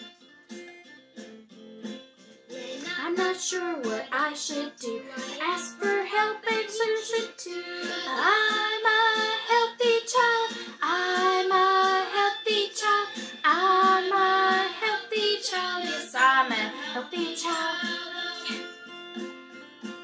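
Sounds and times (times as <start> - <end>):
children singing a song: 2.7 - 18.6.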